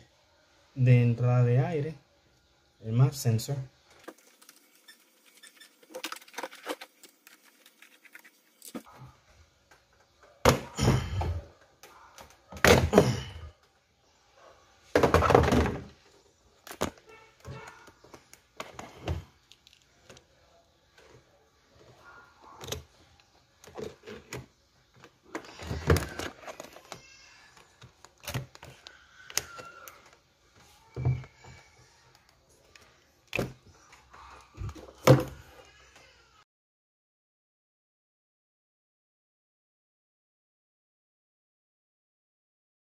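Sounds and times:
plastic parts scraping and clunking: 0:03.9 - 0:09.0, 0:14.9 - 0:20.3, 0:20.9 - 0:35.5.

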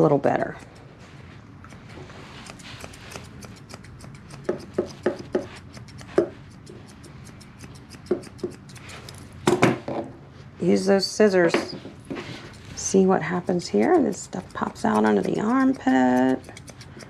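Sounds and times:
grooming shears snipping: 0:01.6 - 0:09.3, 0:12.2 - 0:17.0.

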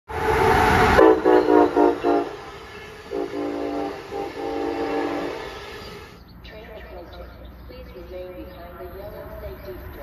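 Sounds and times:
train horn blasts: 0:00.8 - 0:05.9.

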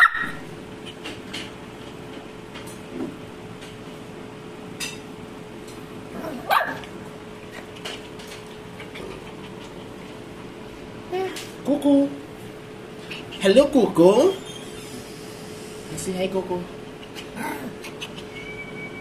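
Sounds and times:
puppy barking: 0:00.0 - 0:00.4, 0:06.2 - 0:06.9.

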